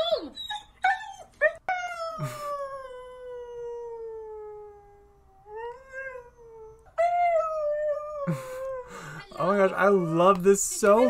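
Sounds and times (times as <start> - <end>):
dog yipping: 0.0 - 1.9.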